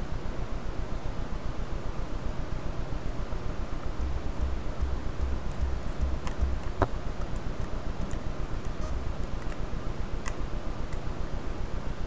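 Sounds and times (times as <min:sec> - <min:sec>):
low steady hum: 0:00.0 - 0:12.0
plastic parts and tools clicking: 0:04.0 - 0:11.0.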